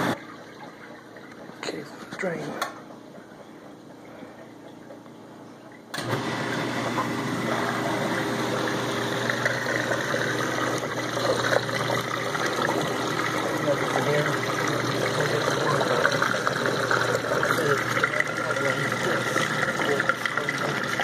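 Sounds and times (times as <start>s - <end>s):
dishwasher pump motor humming: 0.0s - 21.0s
churning water: 6.0s - 21.0s.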